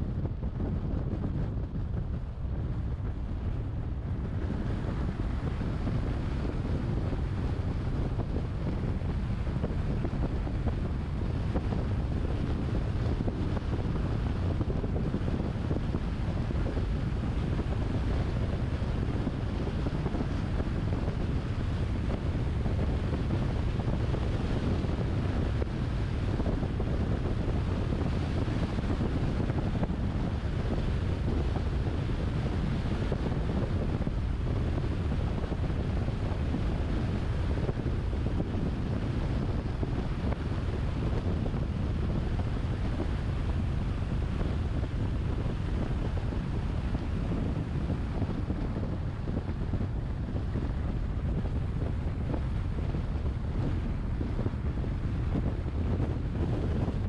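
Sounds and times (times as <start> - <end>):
wind buffeting microphone: 0.0 - 57.0
wind rush from moving car: 0.0 - 57.0.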